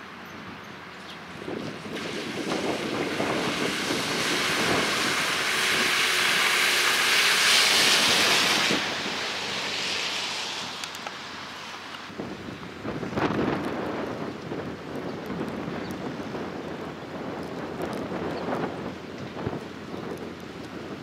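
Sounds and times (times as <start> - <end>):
car driving through floodwater: 1.2 - 21.0
tyre spray rushing hiss: 1.8 - 12.0.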